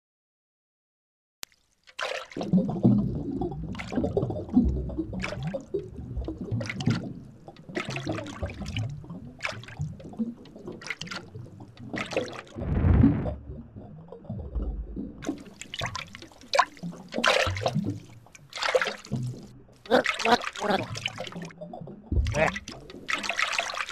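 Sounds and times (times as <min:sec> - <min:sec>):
water splashes: 0:01.4 - 0:23.9
underwater gurgling and bubbling: 0:02.4 - 0:18.2, 0:20.8 - 0:23.2.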